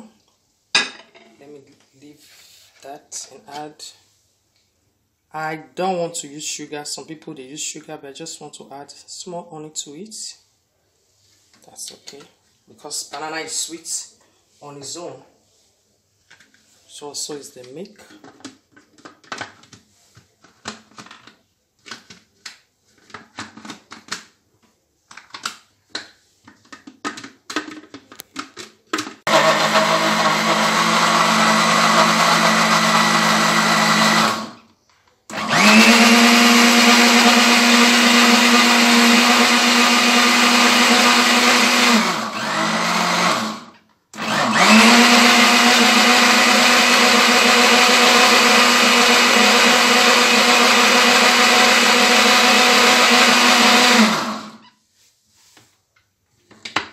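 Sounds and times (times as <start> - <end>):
electric blender running: 29.3 - 34.6, 35.3 - 54.6
plastic clicks and knocks: 56.0 - 56.9.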